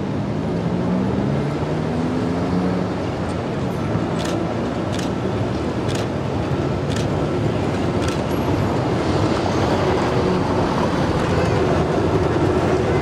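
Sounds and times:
road traffic noise: 0.0 - 13.0
tram running over track: 2.9 - 13.0.

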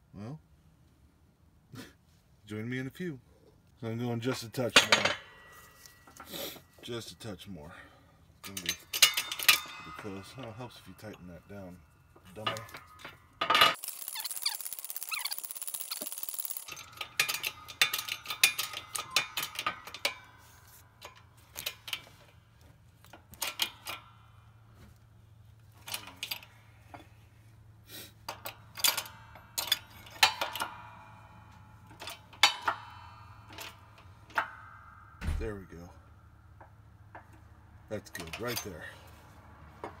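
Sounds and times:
metallic clicks and knocks: 8.4 - 22.4, 23.0 - 24.5, 25.6 - 27.1, 28.3 - 38.8.

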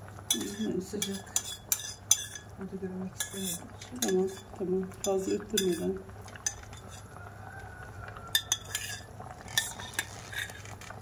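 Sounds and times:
spoon stirring stew: 0.1 - 7.2, 8.0 - 11.0
spoon clinking against metal pot: 0.3 - 2.5, 3.2 - 7.1, 8.3 - 10.1.

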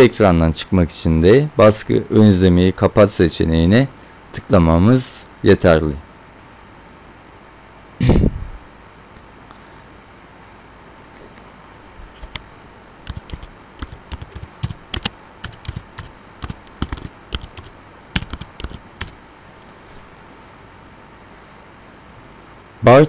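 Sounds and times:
computer keyboard typing: 12.1 - 12.4, 13.0 - 19.2.

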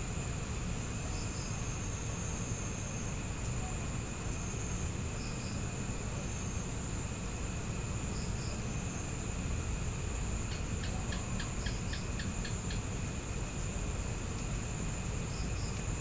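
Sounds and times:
crickets trilling: 0.0 - 16.0
rapid insect chirps: 8.0 - 16.0.

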